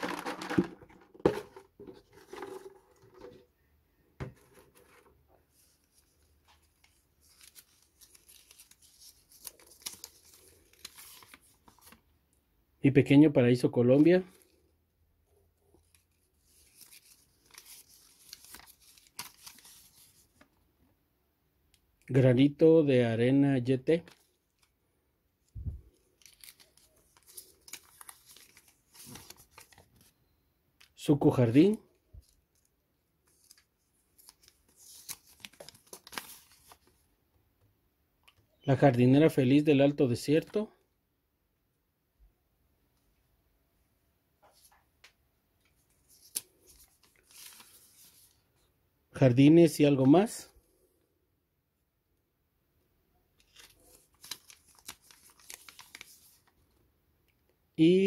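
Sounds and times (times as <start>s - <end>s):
paper rustling: 0.0s - 3.4s, 4.3s - 12.0s, 15.8s - 20.5s, 25.7s - 30.1s, 32.2s - 37.0s, 45.6s - 48.4s, 53.4s - 56.6s
plastic crinkling: 15.9s - 20.2s, 25.9s - 30.1s, 33.3s - 36.9s, 53.4s - 56.5s.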